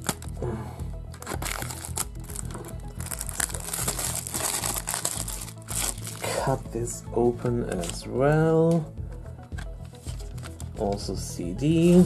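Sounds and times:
background music: 0.0s - 12.0s
cellophane crinkling and rustling: 1.1s - 6.3s.

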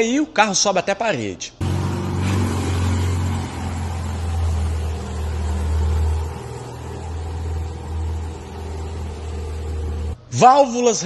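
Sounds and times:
car engine low drone: 1.6s - 10.2s.

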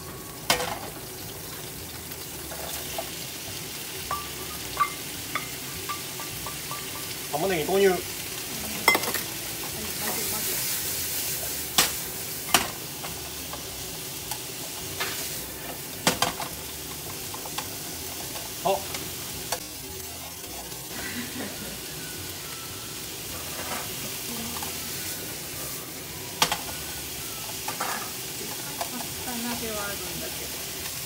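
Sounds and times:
onions sizzling in frying pan: 0.0s - 31.0s.

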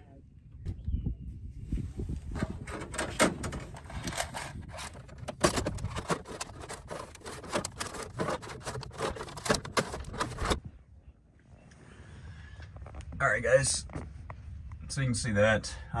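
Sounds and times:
wind rumble on microphone: 0.0s - 7.1s
wire scraping through a hole: 2.3s - 10.6s.

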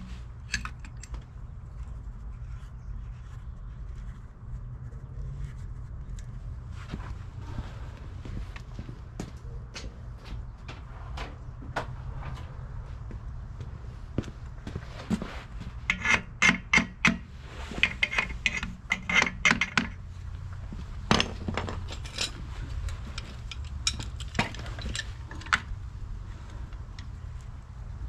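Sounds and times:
steady low hum: 0.0s - 28.0s
metal clamp clinks and knocks: 21.1s - 25.7s.

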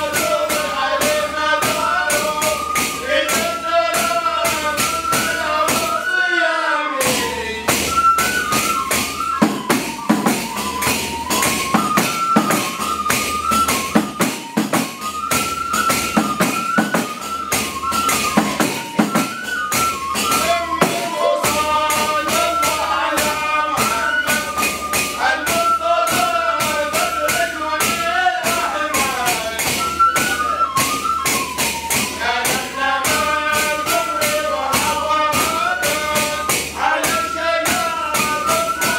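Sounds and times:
frame drums fast rhythm: 0.0s - 6.2s, 7.0s - 38.9s
men singing a chant: 0.0s - 8.0s, 20.3s - 30.4s, 31.8s - 38.9s.

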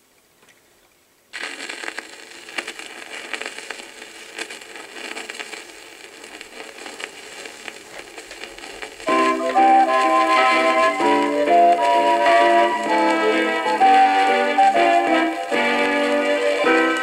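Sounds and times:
record surface hiss: 0.0s - 17.0s
record crackles and pops: 0.1s - 17.0s
music from record: 8.6s - 17.0s.

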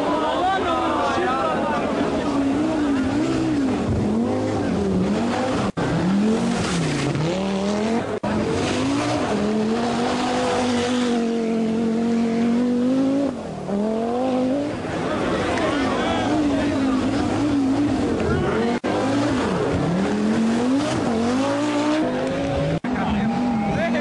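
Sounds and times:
rally car engine revving: 0.0s - 24.0s.

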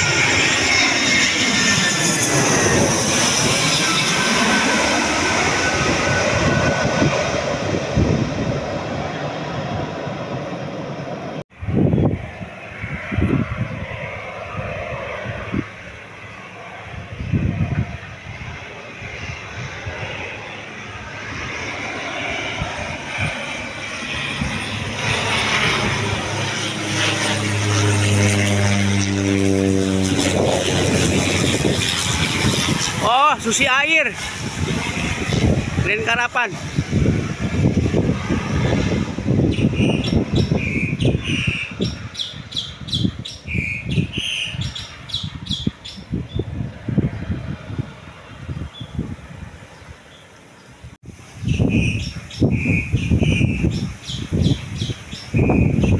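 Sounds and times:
propeller plane drone: 0.0s - 55.9s
wind on microphone: 0.0s - 55.9s
bird chirping: 39.5s - 46.4s, 51.4s - 55.9s.

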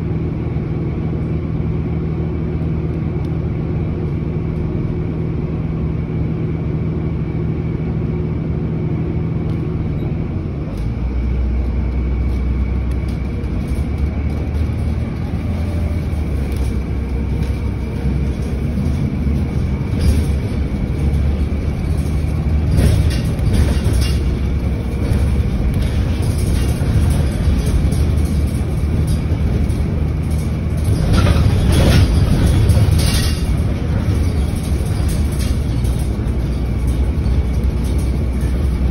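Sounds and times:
bus engine: 0.0s - 38.9s
road rumble: 0.0s - 38.9s
short rattles: 12.1s - 38.9s.

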